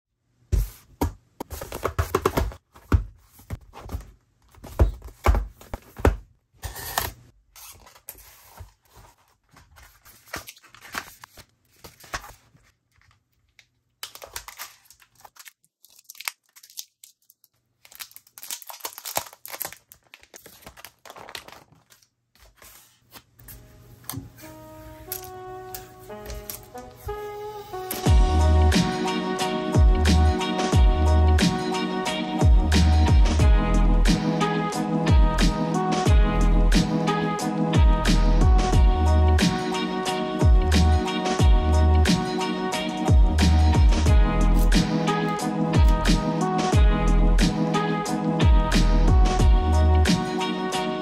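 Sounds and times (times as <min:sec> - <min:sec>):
plastic crinkling: 0:07.6 - 0:23.2
packaging tearing: 0:14.0 - 0:22.7
soft music: 0:23.6 - 0:51.0.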